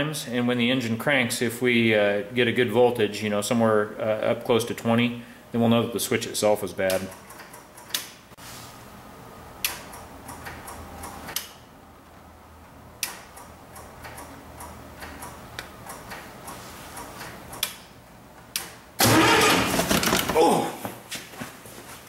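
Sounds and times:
switch clicking: 9.6s - 11.6s.

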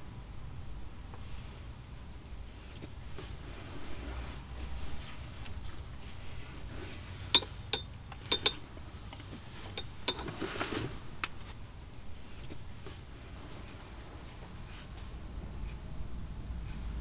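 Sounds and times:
hard objects clicking and knocking: 7.4s - 8.6s, 9.2s - 10.4s.

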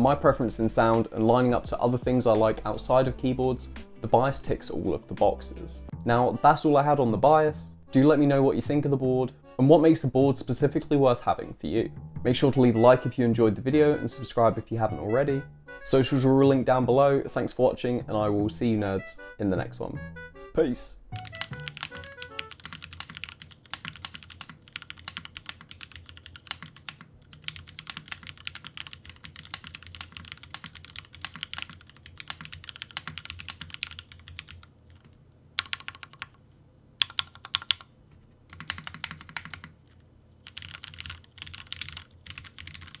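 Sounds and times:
mechanical keyboard typing: 21.2s - 36.4s, 37.0s - 37.9s, 38.5s - 39.8s, 40.4s - 43.0s.

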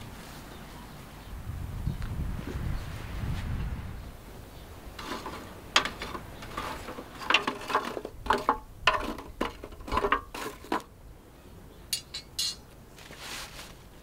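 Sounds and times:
charcoal clinking in metal brazier: 5.0s - 10.9s, 11.9s - 12.6s.

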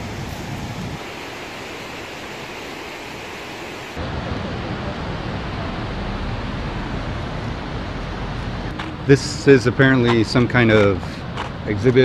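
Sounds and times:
outdoor ambient hiss: 0.0s - 12.0s
low rumble: 4.0s - 8.8s.

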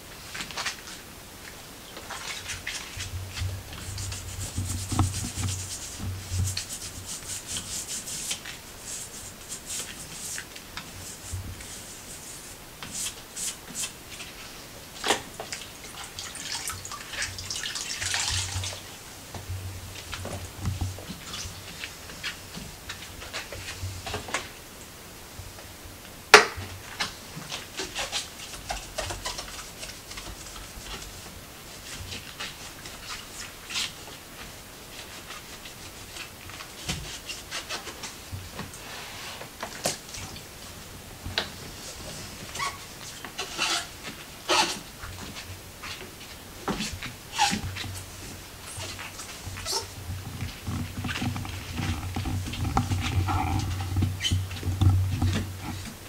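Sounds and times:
cloth rubbing wood: 2.2s - 14.6s, 35.0s - 40.8s, 41.5s - 56.0s.

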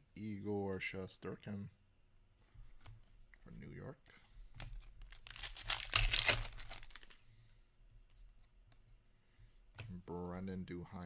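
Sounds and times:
trading cards rustling: 4.6s - 7.2s.

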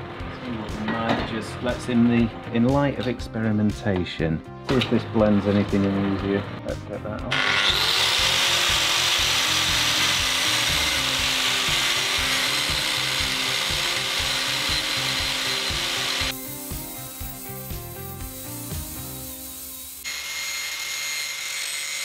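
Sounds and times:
motors running: 7.3s - 17.4s
angle grinder grinding metal: 7.3s - 22.0s.

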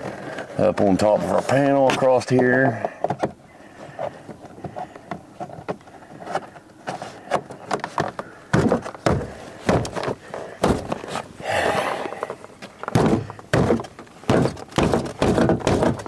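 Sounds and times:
hand striking plastic panel: 7.3s - 11.0s, 12.8s - 16.0s.

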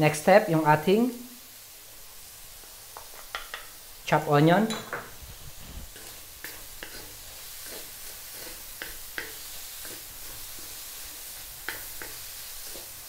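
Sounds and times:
food sizzling in a wok: 0.0s - 13.0s
wooden spatula scraping a pan: 5.0s - 13.0s.

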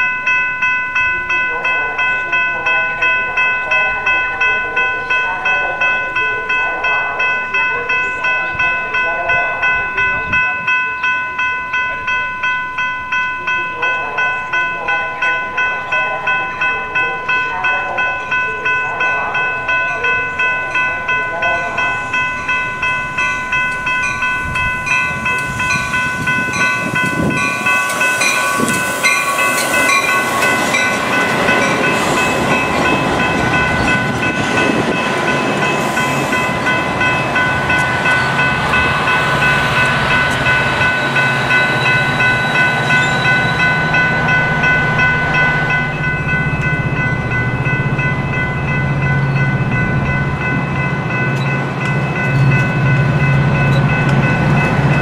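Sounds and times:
crossing bell ringing: 0.0s - 55.0s
train wheels rumbling on rail: 0.8s - 55.0s
diesel locomotive hum: 11.3s - 55.0s.

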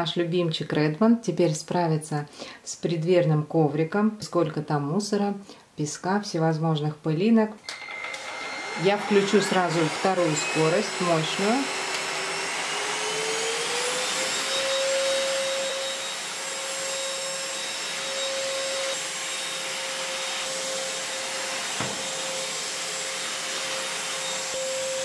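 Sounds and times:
vacuum cleaner motor whining: 7.6s - 25.0s.

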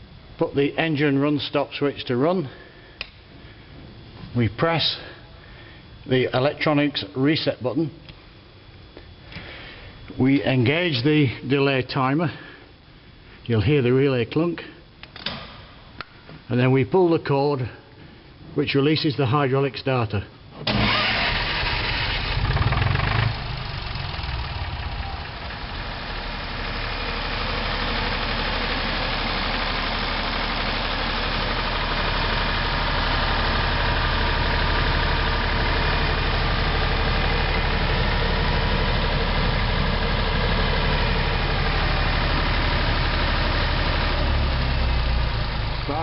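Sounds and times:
generator starter burst: 20.6s - 24.8s
diesel generator running: 20.6s - 46.0s.

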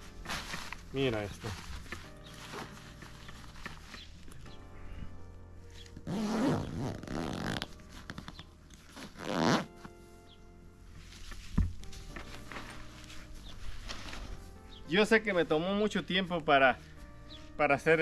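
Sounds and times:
zipper being pulled shut: 6.0s - 9.9s.

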